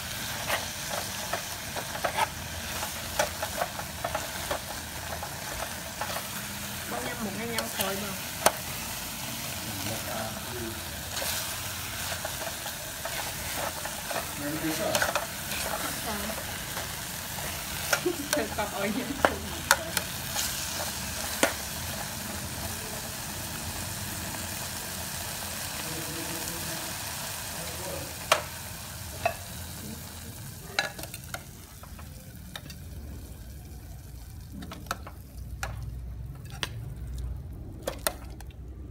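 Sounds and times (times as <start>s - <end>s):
metal spoon stirring food in pan: 0.0s - 22.6s
food sizzling in pan: 0.0s - 36.8s.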